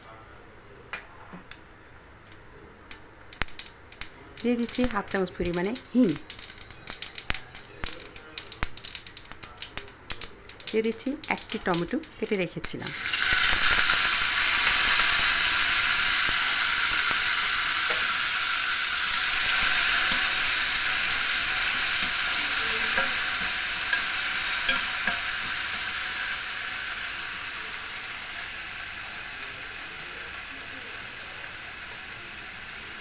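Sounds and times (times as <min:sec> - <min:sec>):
spatula clicking against pan: 0:02.9 - 0:12.8
tomato sizzling in hot oil: 0:02.9 - 0:33.0.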